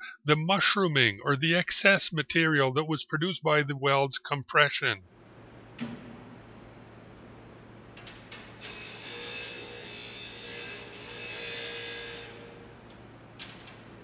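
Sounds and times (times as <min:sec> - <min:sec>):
grinding wheel grinding steel: 0:08.5 - 0:12.8.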